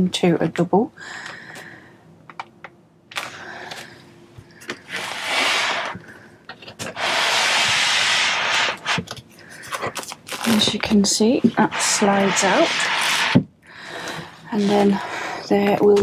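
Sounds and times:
bed base sliding and rustling: 4.9 - 6.0, 11.2 - 13.4.

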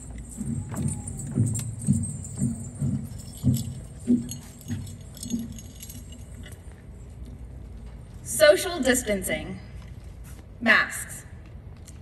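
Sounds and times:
light clicks and jingling: 0.0 - 8.2
footsteps thudding on stage: 0.1 - 5.8.

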